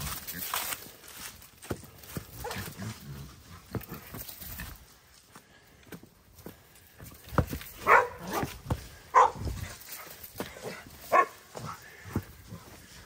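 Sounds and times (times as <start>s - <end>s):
knocks and thumps: 7.2s - 9.6s.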